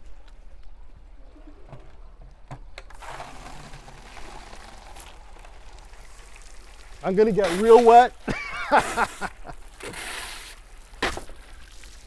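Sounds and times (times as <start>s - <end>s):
water rushing into plastic jug: 2.9s - 12.0s.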